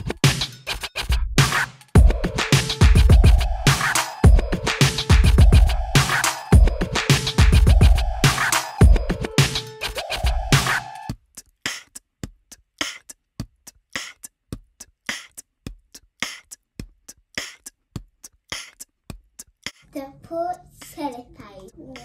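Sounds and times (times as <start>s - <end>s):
music with record scratching: 0.0s - 11.1s, 20.8s - 22.0s
crisp percussion beat: 0.0s - 22.0s.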